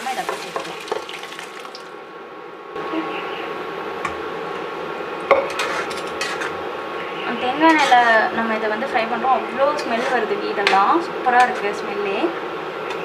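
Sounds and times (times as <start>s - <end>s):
liquid pouring into pan: 0.0s - 2.0s
liquid sizzling in pan: 0.0s - 2.0s
spatula knocking and scraping pan: 0.2s - 1.1s.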